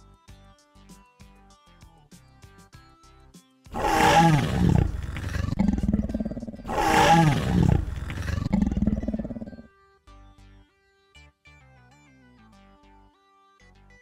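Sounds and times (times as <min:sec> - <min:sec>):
dinosaur roar: 0:03.7 - 0:09.7.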